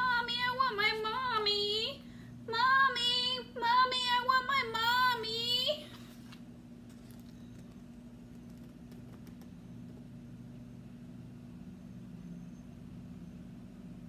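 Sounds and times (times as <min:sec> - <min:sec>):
steady low hum: 0:00.0 - 0:14.0
book handling clicks and rustles: 0:05.9 - 0:10.0.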